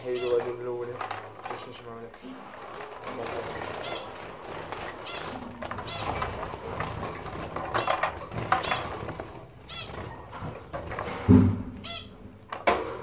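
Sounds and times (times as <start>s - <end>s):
rustling and clatter in cage: 0.0s - 13.0s
finches calling: 3.7s - 4.2s, 5.0s - 6.2s, 9.6s - 10.2s.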